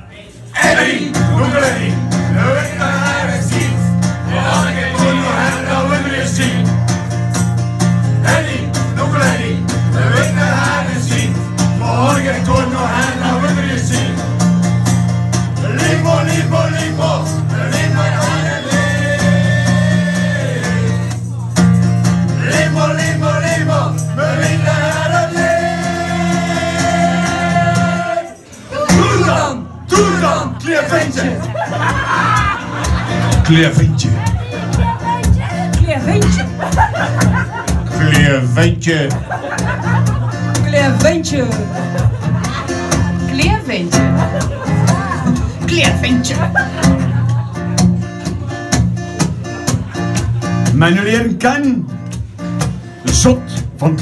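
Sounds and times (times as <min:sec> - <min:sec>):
guitar accompaniment: 0:00.4 - 0:54.0
group of people singing: 0:00.5 - 0:07.0, 0:08.0 - 0:14.3, 0:15.5 - 0:21.3, 0:22.2 - 0:33.2.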